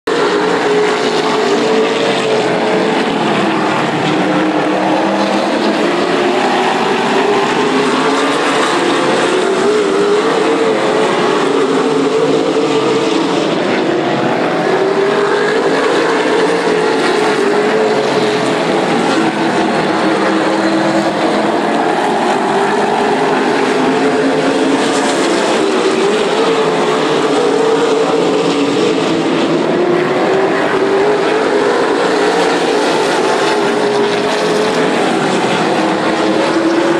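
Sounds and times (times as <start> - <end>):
race car engines: 0.0 - 36.9.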